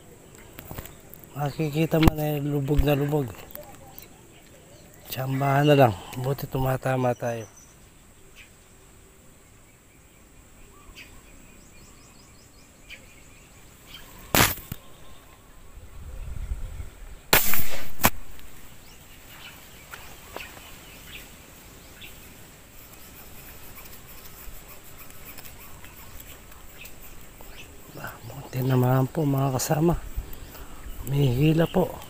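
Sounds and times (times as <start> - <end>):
spear gun snapping: 14.3 - 14.8, 17.4 - 18.6.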